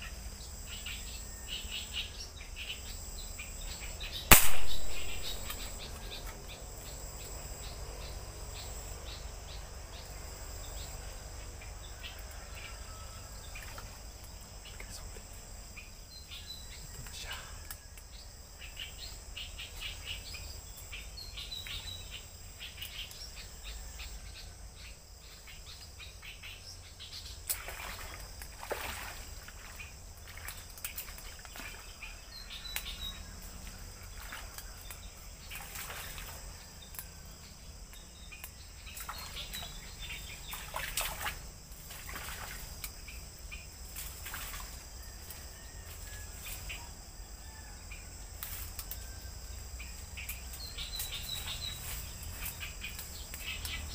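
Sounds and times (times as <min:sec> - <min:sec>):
birds chirping: 0:00.0 - 0:11.0, 0:11.6 - 0:24.2.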